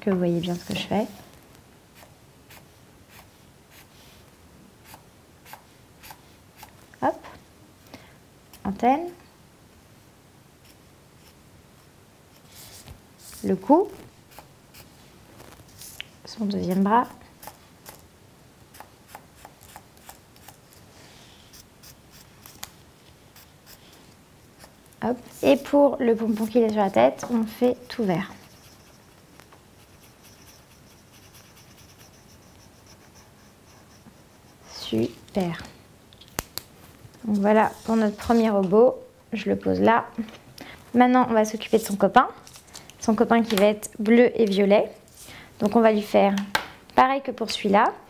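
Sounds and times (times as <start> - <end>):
marker scratching on paper: 26.2 - 34.8.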